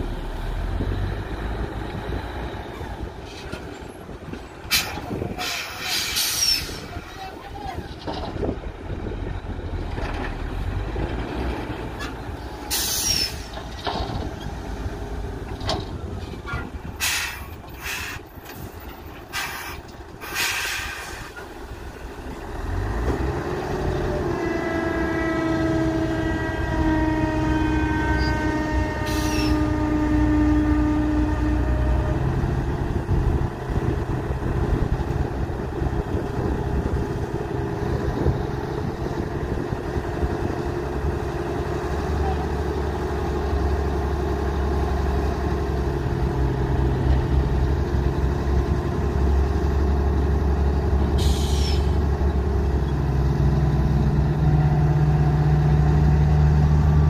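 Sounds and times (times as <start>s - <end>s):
diesel truck engine: 0.0s - 57.0s
truck engine revving with whine: 22.2s - 57.0s.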